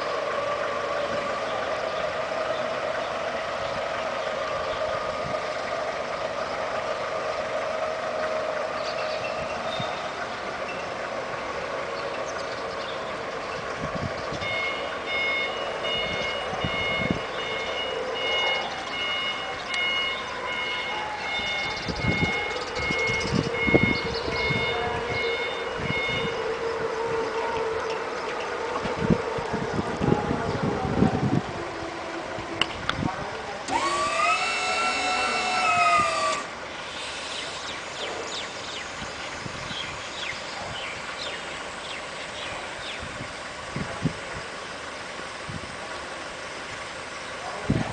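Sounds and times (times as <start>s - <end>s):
forklift hum: 0.0s - 27.2s, 31.5s - 38.4s
reversing alarm beeping: 14.4s - 27.2s, 33.7s - 36.5s
electric motor whining: 33.6s - 37.3s.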